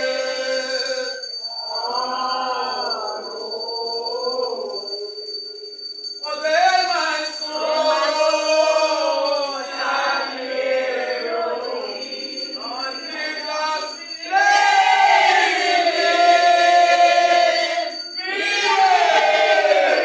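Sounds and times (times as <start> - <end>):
congregation singing a hymn: 0.0 - 5.0, 6.3 - 20.0.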